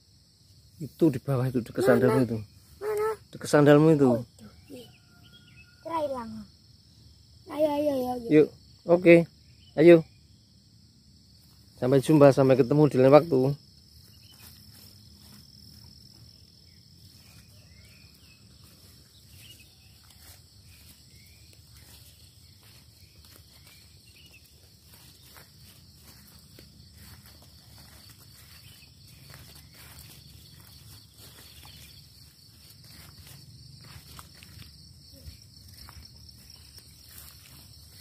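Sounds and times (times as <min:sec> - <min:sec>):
crickets chirring: 0:00.0 - 0:38.0
footsteps: 0:14.0 - 0:38.0
legs brushing through shrubs: 0:17.0 - 0:38.0.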